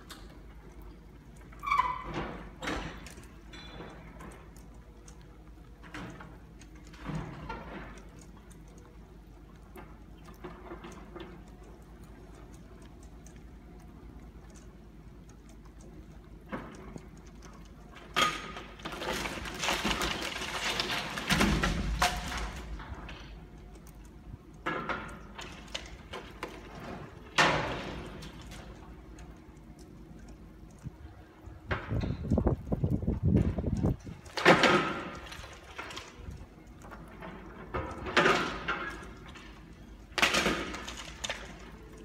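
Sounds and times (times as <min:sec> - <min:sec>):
low steady hum: 0:00.0 - 0:42.0
building crashing and crunching: 0:18.6 - 0:23.2.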